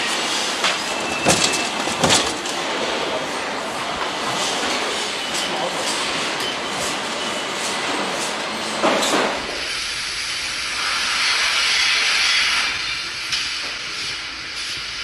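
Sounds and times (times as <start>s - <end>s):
clattering machinery: 0.0s - 9.6s
steady hiss: 9.6s - 15.0s.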